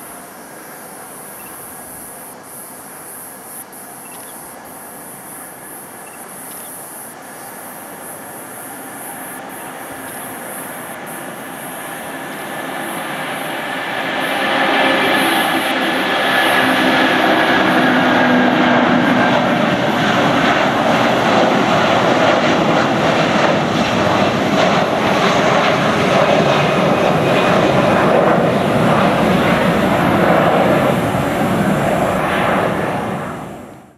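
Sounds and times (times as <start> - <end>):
faint steady whine: 0.0 - 23.6
jet engines at takeoff: 0.0 - 33.9.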